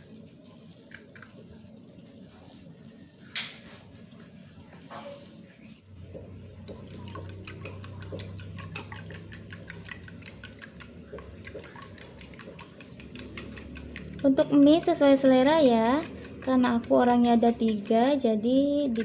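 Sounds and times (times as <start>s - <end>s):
utensil clinking against bowl: 6.6s - 18.3s.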